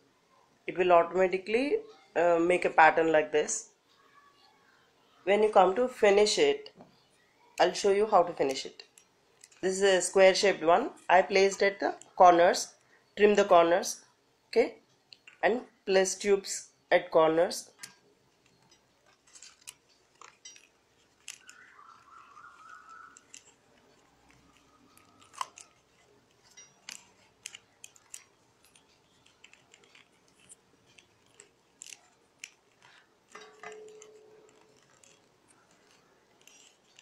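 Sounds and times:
paper tubes crinkling: 0:17.8 - 0:37.0.

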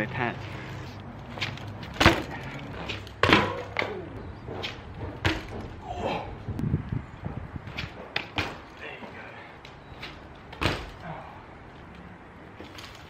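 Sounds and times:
bike knocking on brick pavers: 0:01.4 - 0:05.9, 0:07.2 - 0:08.8.

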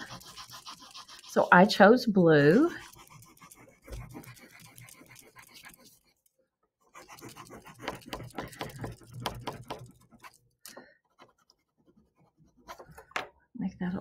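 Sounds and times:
crayon rubbing on paper: 0:00.0 - 0:06.3, 0:06.9 - 0:10.4.

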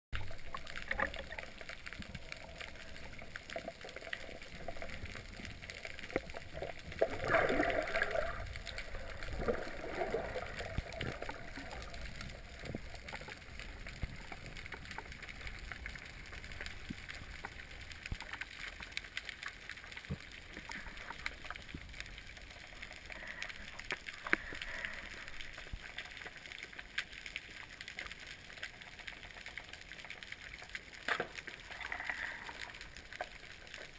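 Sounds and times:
muffled underwater gurgling and sloshing: 0:00.2 - 0:18.6
rush of water: 0:00.2 - 0:27.0
small ticks and clicks: 0:00.2 - 0:33.9.

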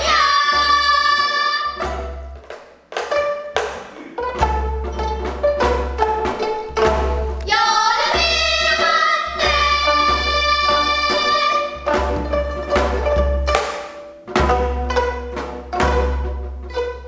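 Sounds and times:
singers in unison: 0:00.0 - 0:01.9, 0:07.4 - 0:11.8
plucked zithers: 0:03.0 - 0:07.5.

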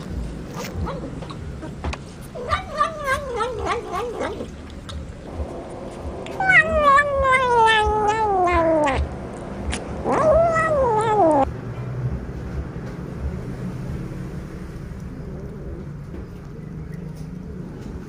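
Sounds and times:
cat meowing: 0:02.3 - 0:04.6, 0:06.3 - 0:09.1, 0:10.0 - 0:11.5.

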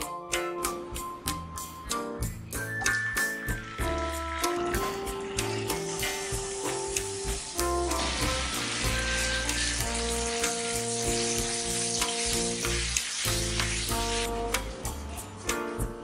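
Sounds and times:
caramel sizzling and bubbling in pan: 0:03.2 - 0:15.2.

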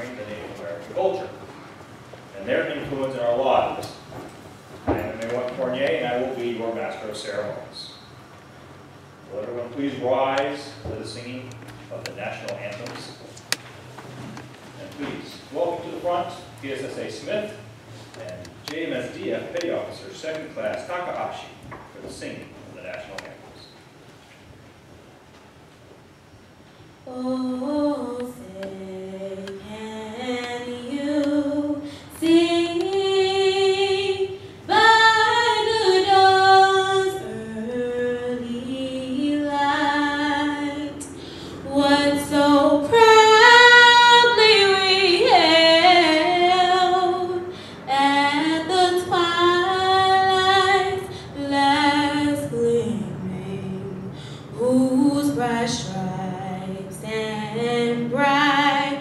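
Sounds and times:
woman singing unaccompanied: 0:27.1 - 0:59.0.

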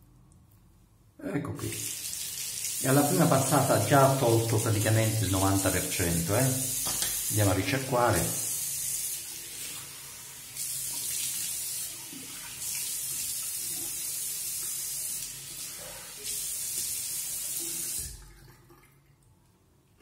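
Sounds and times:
tap running into sink: 0:06.8 - 0:07.3.

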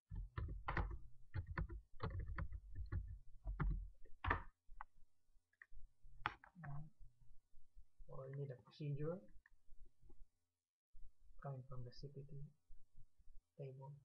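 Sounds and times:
keyboard keystrokes: 0:00.1 - 0:04.5.

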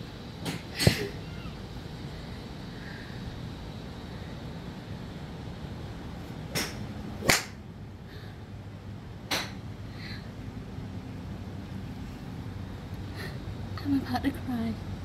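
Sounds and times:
golf clubs striking balls: 0:00.4 - 0:01.1, 0:06.5 - 0:07.6, 0:09.3 - 0:09.6.

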